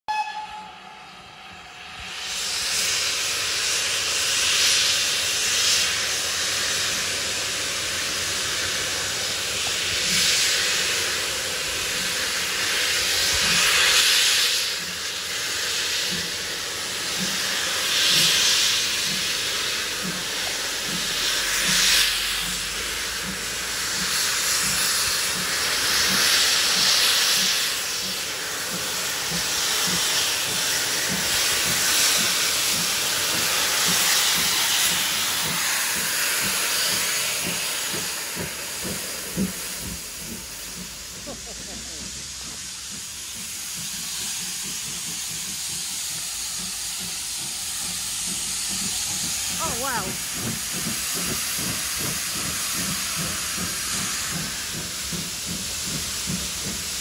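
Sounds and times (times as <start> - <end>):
steam hissing: 0.1 - 57.0.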